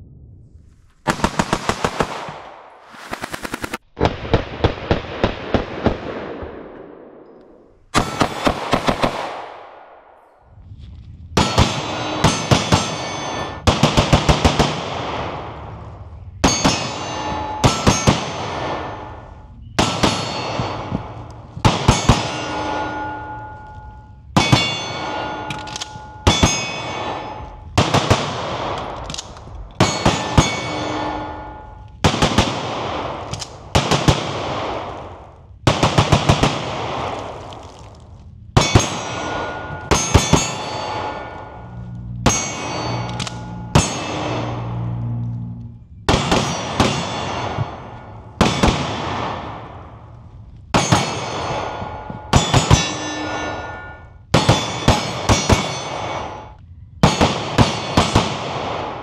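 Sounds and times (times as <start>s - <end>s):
pistol shots: 1.0s - 10.2s, 46.1s - 50.1s, 57.0s - 59.0s
steel targets clanging: 11.4s - 13.7s, 16.2s - 27.8s, 28.8s - 32.0s, 38.6s - 45.1s, 46.0s - 48.6s, 50.7s - 58.2s.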